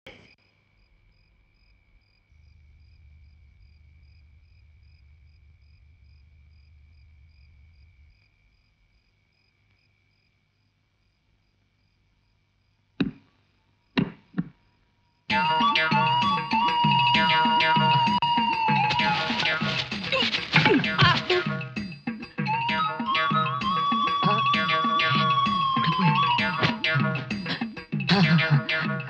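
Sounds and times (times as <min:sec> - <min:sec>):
crickets chirring: 0:00.2 - 0:29.0
sharp knocks: 0:13.0 - 0:13.3, 0:14.0 - 0:14.6.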